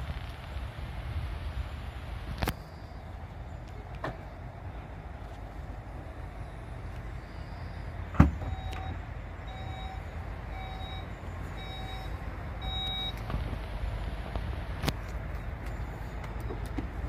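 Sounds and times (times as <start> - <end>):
warning beeps: 7.4 - 13.2.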